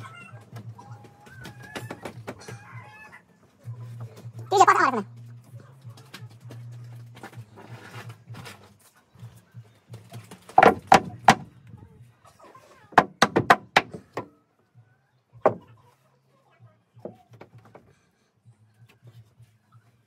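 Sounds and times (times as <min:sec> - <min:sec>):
wrench knocking on plywood panels: 0:10.6 - 0:11.5, 0:13.0 - 0:14.3.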